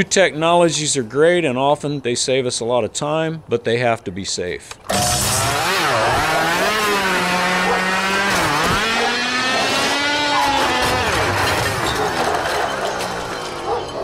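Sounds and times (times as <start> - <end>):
lawnmower motor revving: 4.8 - 13.7.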